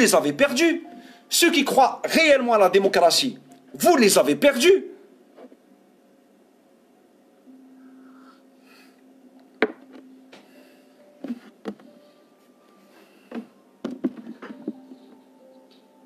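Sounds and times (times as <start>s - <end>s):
knocking on wooden desk: 9.6s - 9.8s, 13.3s - 14.8s.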